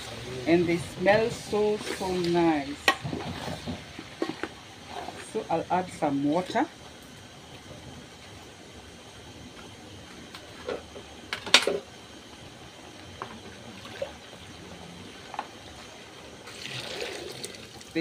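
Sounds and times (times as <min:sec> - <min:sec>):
water pouring into a metal pot: 0:16.5 - 0:18.0.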